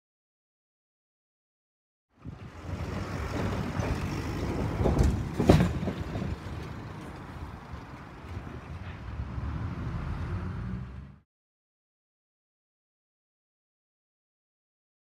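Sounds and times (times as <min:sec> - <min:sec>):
road traffic rumble: 0:02.1 - 0:11.2
wind on microphone: 0:02.2 - 0:06.5.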